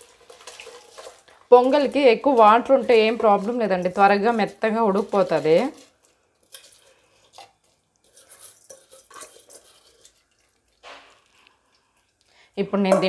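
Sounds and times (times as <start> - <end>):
rice splashing into boiling water: 0.0 - 6.0
metal dish scraping: 6.5 - 11.3.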